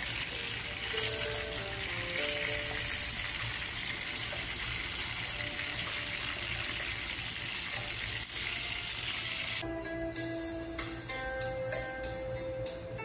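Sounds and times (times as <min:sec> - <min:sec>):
oil sizzling in a frying pan: 0:00.0 - 0:09.7.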